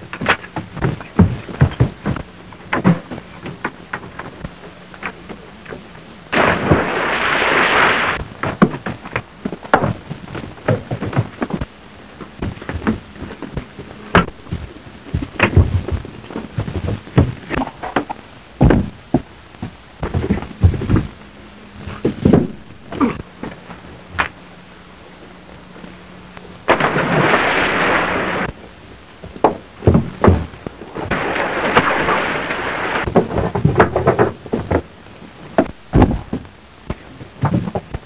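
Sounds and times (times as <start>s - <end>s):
sharp thuds and blows: 18.6s - 19.3s.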